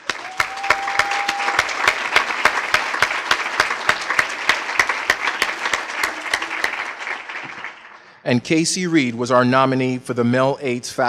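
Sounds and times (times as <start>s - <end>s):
audience applauding: 0.0s - 8.2s
sharp individual claps: 0.0s - 8.2s.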